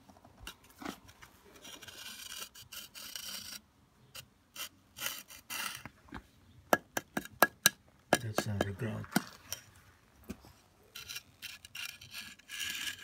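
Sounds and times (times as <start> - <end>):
metal tool scraping concrete: 0.5 - 5.9, 8.2 - 9.8, 10.8 - 13.0.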